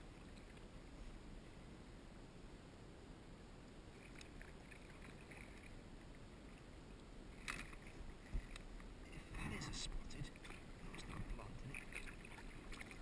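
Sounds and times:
water lapping against kayak hull: 3.9 - 13.0.

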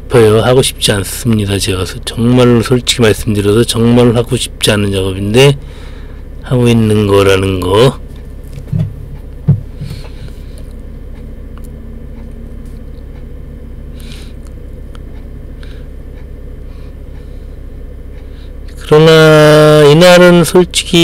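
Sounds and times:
forklift engine running: 0.0 - 21.0
short knocks: 8.5 - 10.2.

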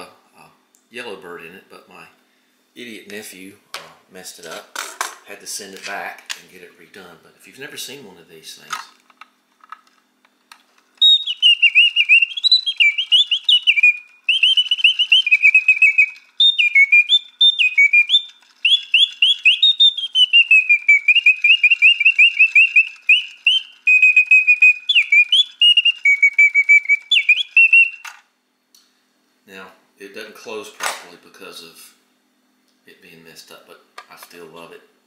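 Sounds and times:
mechanical birdsong whistle trilling: 11.0 - 28.2.

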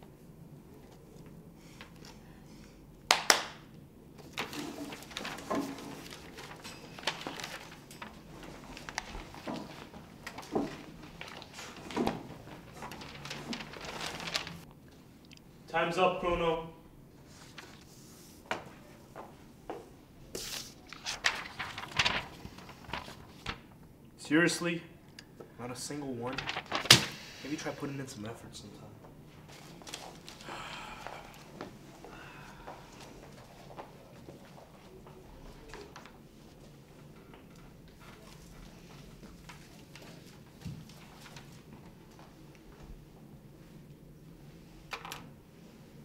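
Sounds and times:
paper handling: 4.2 - 14.7, 17.3 - 18.7, 20.3 - 23.8, 26.2 - 27.6, 29.5 - 30.5, 32.9 - 42.9
shuffling: 4.4 - 14.7, 29.0 - 43.8.

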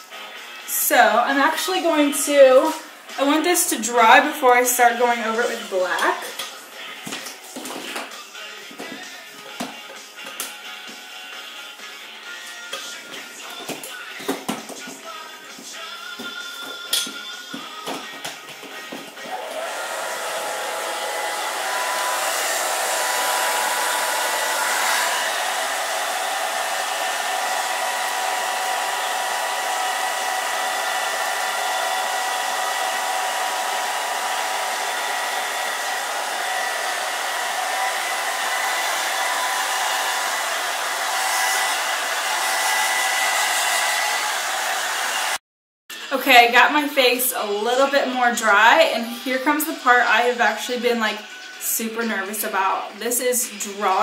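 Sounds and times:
hair dryer blowing: 0.0 - 9.9, 15.5 - 45.4.

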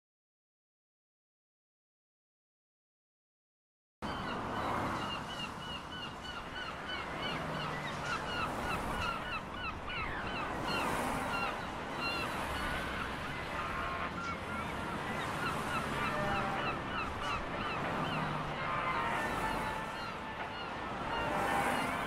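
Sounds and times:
steady background noise: 4.0 - 22.0
flock of birds calling: 4.1 - 22.0.

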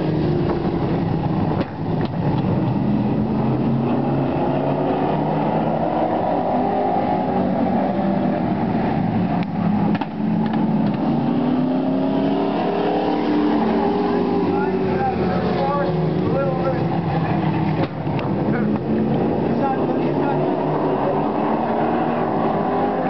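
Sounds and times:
race car engines running hard: 0.0 - 23.0.

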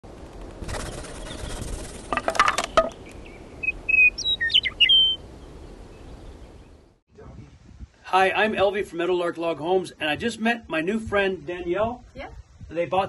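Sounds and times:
bird whistling song: 2.6 - 5.3.

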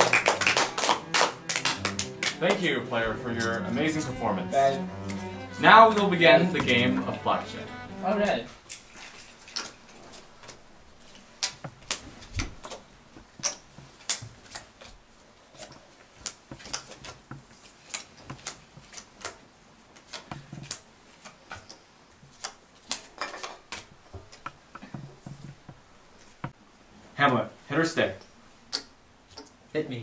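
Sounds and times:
playing cards being dealt: 0.1 - 8.4.

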